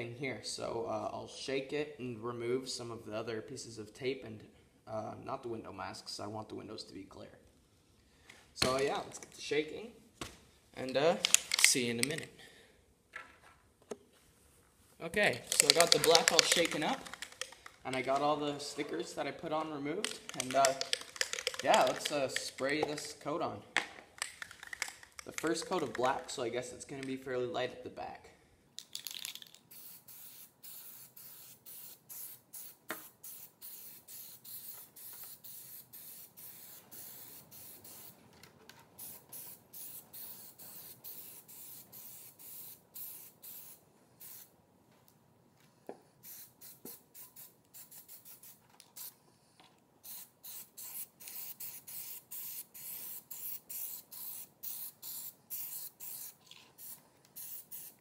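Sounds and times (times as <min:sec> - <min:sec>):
aerosol spray can hissing: 0:29.2 - 0:38.2, 0:39.0 - 0:44.5, 0:46.2 - 0:49.2, 0:50.0 - 0:58.0.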